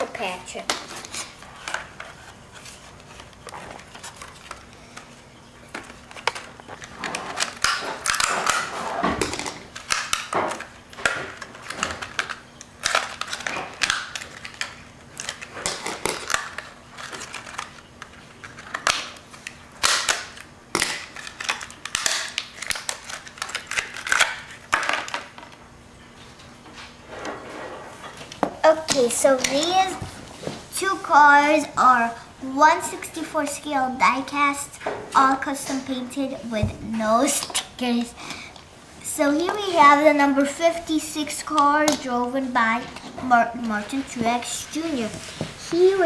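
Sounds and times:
plastic rustling: 0:00.2 - 0:25.4
plastic packaging crackling: 0:05.8 - 0:25.3.

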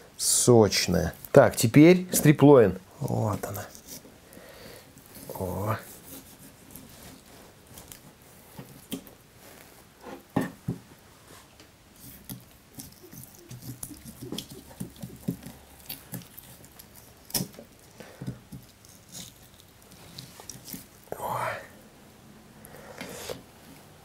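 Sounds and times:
knife scraping along bone: 0:12.0 - 0:17.6, 0:18.5 - 0:20.9.

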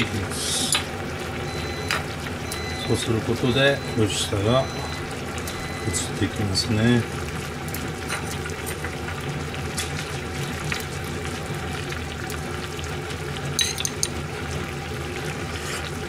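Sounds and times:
broth bubbling: 0:00.0 - 0:16.0
ladle clinking on bowl: 0:13.6 - 0:14.1.

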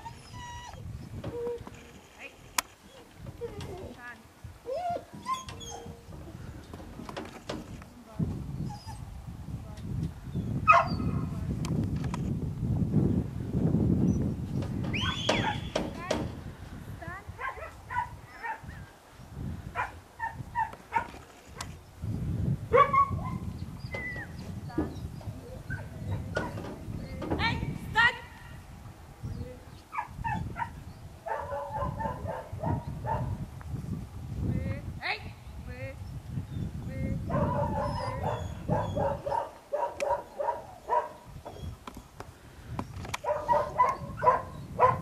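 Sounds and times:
wind rumbling on microphone: 0:00.0 - 0:45.0
dog yapping: 0:04.7 - 0:06.0, 0:15.0 - 0:15.7, 0:37.3 - 0:41.2, 0:43.2 - 0:45.0.

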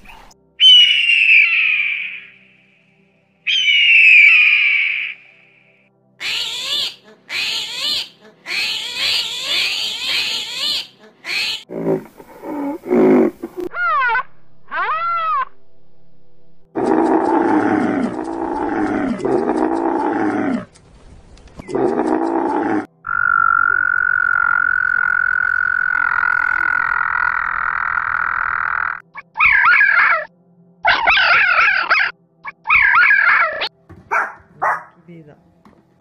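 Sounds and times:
fox high-pitched wavering calls: 0:00.6 - 0:02.3, 0:03.5 - 0:05.2, 0:06.2 - 0:11.7, 0:13.7 - 0:15.6, 0:21.7 - 0:34.9
frog calling with high note: 0:00.6 - 0:02.4, 0:03.5 - 0:05.5, 0:06.2 - 0:10.8, 0:23.0 - 0:30.3
camel low calls: 0:16.8 - 0:20.7, 0:21.6 - 0:22.9.

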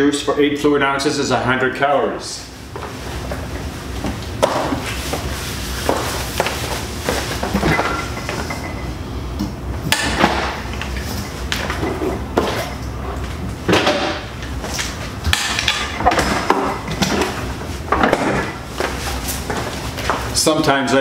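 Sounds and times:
bottles and containers clattering: 0:07.1 - 0:08.9.

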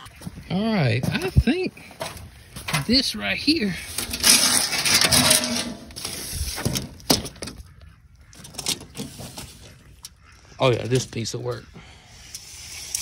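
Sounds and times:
tin sheets rattling and scraping: 0:01.8 - 0:09.9
metal sheets clanking: 0:02.0 - 0:07.6.

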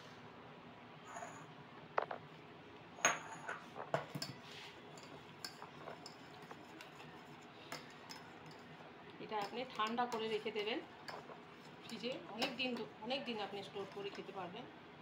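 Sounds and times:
spoon clinking against saucepan: 0:05.0 - 0:07.0, 0:07.7 - 0:08.7, 0:09.4 - 0:12.9.

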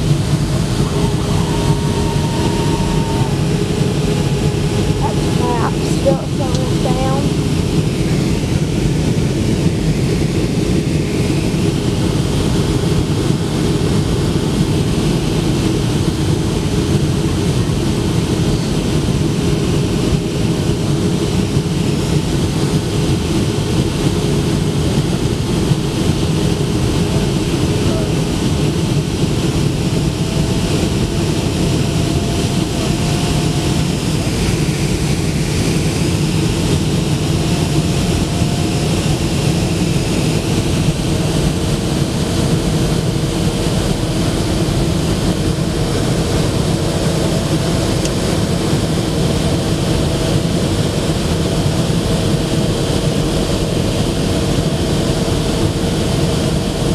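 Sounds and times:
low steady hum: 0:00.0 - 0:10.6
rushing air: 0:00.0 - 0:56.5
jet engines roaring: 0:00.0 - 0:56.9.

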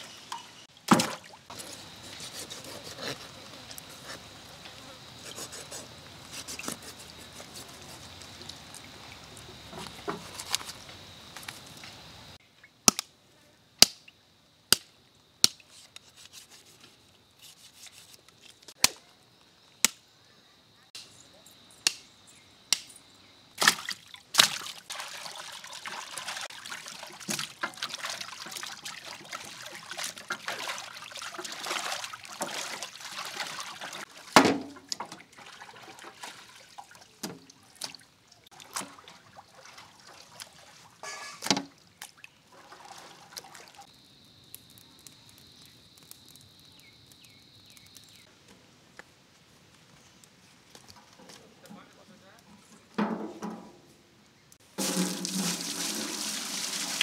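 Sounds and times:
water sloshing in a pot: 0:23.6 - 0:43.9, 0:54.6 - 0:57.0.

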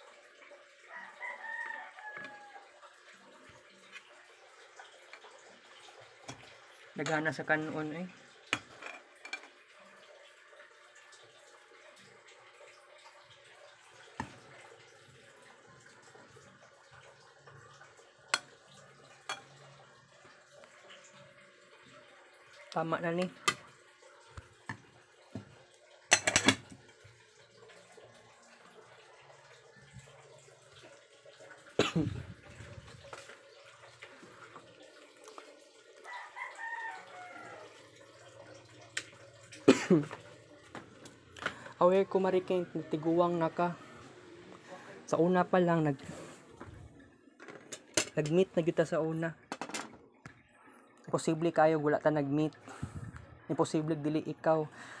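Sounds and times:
metal spoon clinking on pot: 0:26.1 - 0:26.6.

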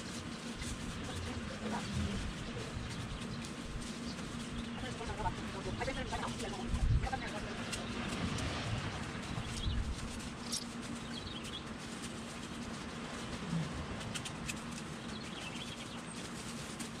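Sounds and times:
steady low hum: 0:00.0 - 0:17.0
small birds chirping: 0:00.2 - 0:13.4, 0:14.1 - 0:17.0.

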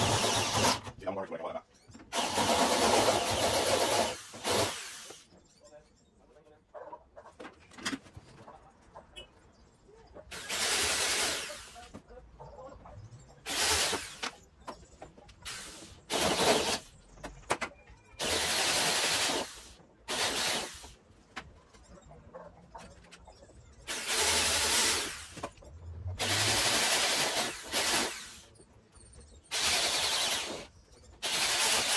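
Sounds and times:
cordless drill boring into metal: 0:23.9 - 0:25.2, 0:26.2 - 0:28.4, 0:29.5 - 0:31.9.

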